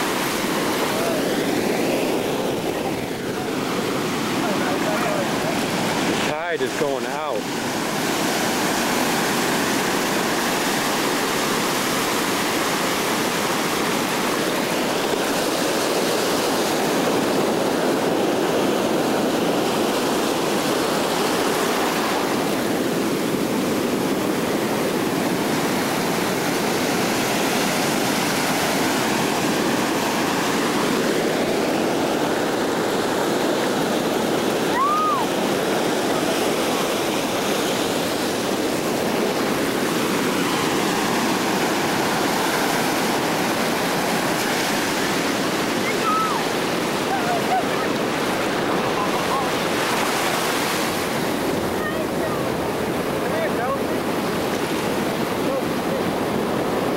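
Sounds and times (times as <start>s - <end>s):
ocean surf breaking on beach: 0.0s - 56.9s.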